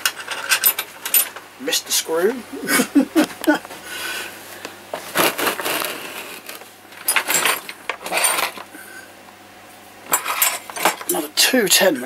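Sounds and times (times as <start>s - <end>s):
metal tools clinking in plastic bin: 0.0s - 1.4s, 5.1s - 8.7s, 10.1s - 11.2s.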